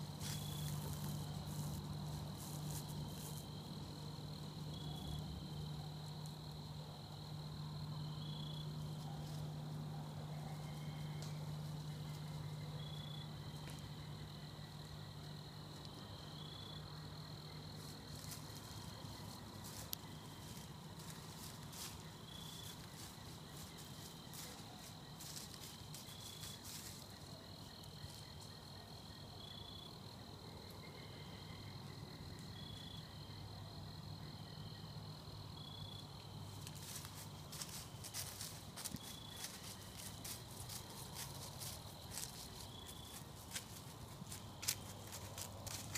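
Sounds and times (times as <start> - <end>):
faint ticks and rustles: 0.0 - 6.7, 17.6 - 29.1, 36.2 - 45.9
crickets trilling: 0.0 - 45.9.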